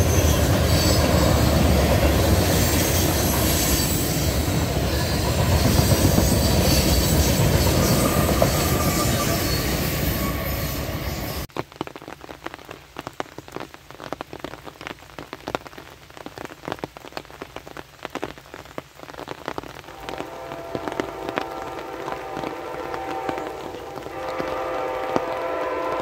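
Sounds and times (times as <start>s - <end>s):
rain drops tapping: 11.5s - 26.0s
faint train horn: 19.9s - 26.0s.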